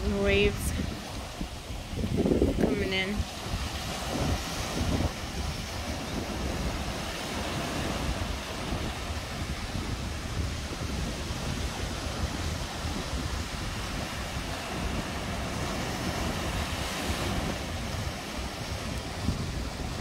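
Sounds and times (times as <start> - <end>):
sea surf breaking on rocks: 0.0 - 20.0
wind buffeting microphone: 0.0 - 20.0.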